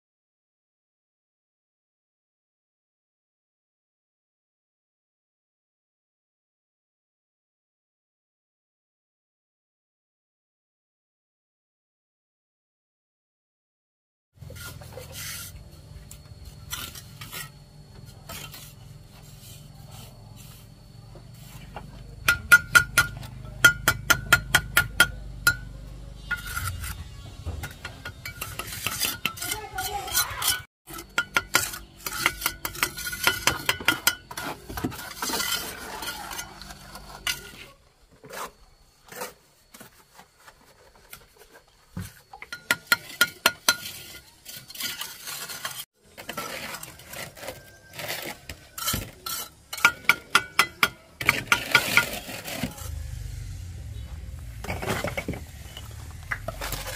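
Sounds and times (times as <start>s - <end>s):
metal scraping through mortar: 14.4s - 56.9s
steady low hum: 52.8s - 56.9s.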